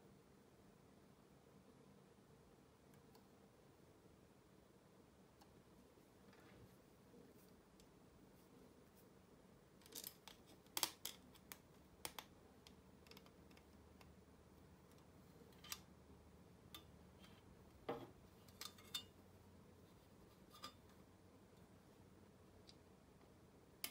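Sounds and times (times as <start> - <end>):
faint clicks of metal parts handled: 9.8 - 14.2, 14.8 - 15.9, 16.7 - 19.2, 19.8 - 21.7.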